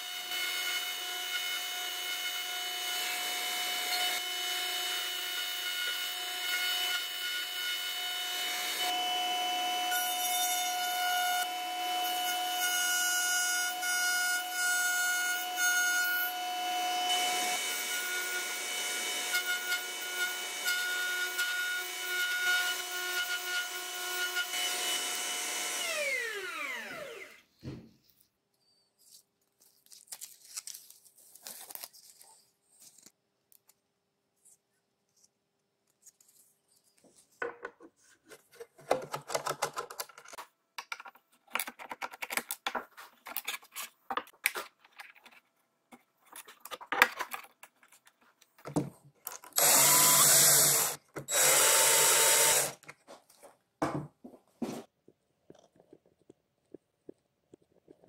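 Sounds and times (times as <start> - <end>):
cordless drill driving screws: 49.6 - 52.8.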